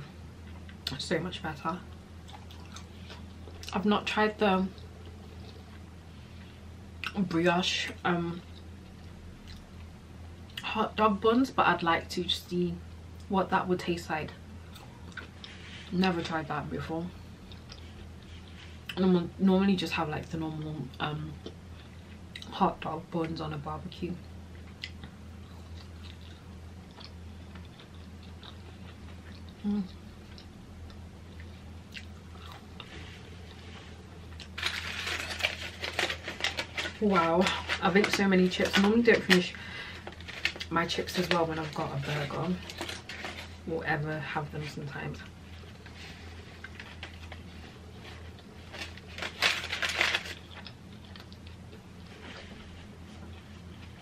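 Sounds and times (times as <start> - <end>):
chewing fries: 1.8 - 3.8, 14.7 - 15.9, 17.3 - 19.0, 24.2 - 43.7, 45.2 - 54.0
aluminium foil crinkle: 32.9 - 44.0, 44.6 - 51.4.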